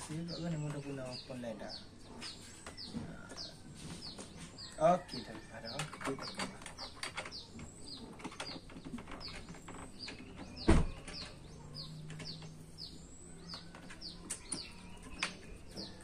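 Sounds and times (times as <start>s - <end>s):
bird chirping: 0.0s - 16.0s
loud thump: 10.7s - 11.0s.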